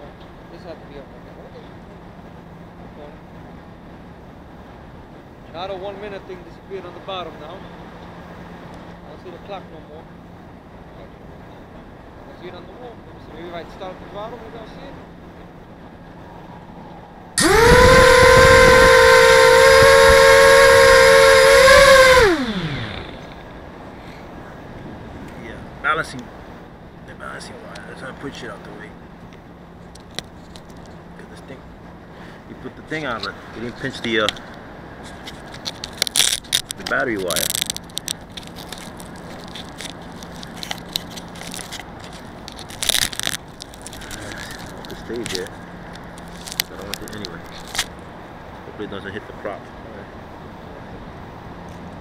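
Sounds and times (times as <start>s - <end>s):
faint steady hum: 0.0s - 52.0s
quadcopter motors whining: 17.4s - 23.6s
handling crackles and clicks: 29.9s - 31.0s, 34.3s - 48.0s
loud rustle: 35.1s - 48.0s.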